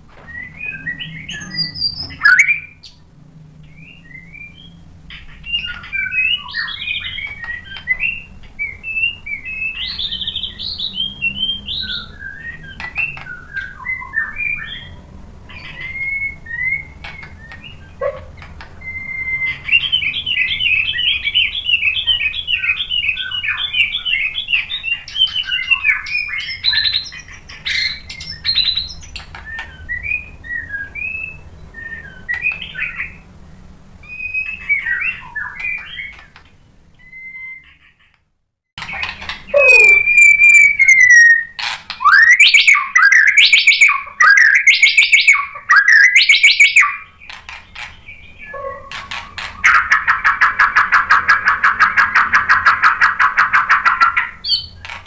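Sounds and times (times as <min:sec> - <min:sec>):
songbird whistling: 0:00.2 - 0:03.0, 0:03.6 - 0:18.2, 0:18.8 - 0:33.2, 0:34.0 - 0:36.2, 0:37.0 - 0:37.8, 0:38.8 - 0:47.2
bird trill: 0:00.3 - 0:03.0, 0:03.6 - 0:18.2, 0:18.8 - 0:33.2, 0:38.8 - 0:54.9.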